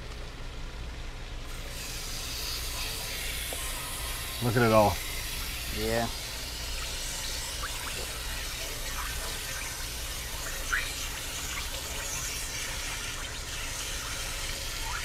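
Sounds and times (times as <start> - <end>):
water gushing and splashing: 5.0 - 15.0.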